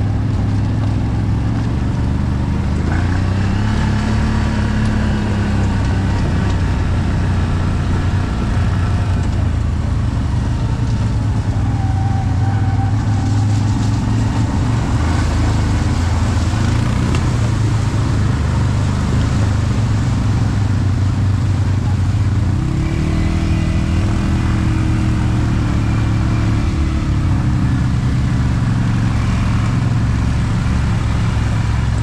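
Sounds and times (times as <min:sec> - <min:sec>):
atv engine running: 0:00.0 - 0:32.0
water splashing: 0:12.8 - 0:22.4.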